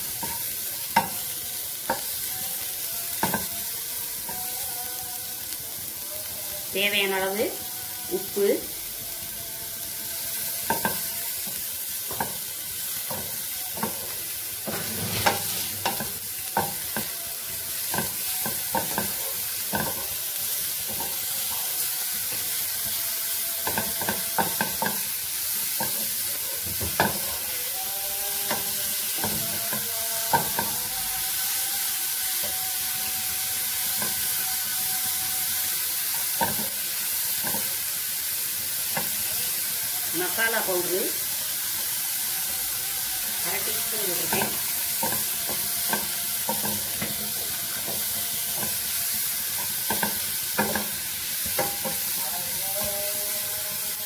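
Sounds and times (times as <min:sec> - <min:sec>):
vegetables sizzling in oil: 0:00.0 - 0:54.0
wooden spatula scraping pan: 0:14.7 - 0:16.0.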